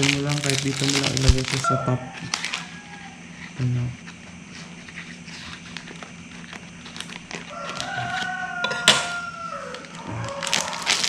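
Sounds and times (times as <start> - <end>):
plastic bag crinkling: 0.0 - 2.7, 5.4 - 8.3, 9.6 - 11.0
rooster crowing: 1.5 - 3.5, 7.4 - 11.0.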